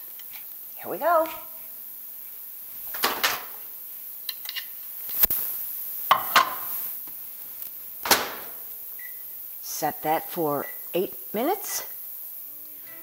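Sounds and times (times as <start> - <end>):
microwave door opening and shutting: 8.1 - 8.6.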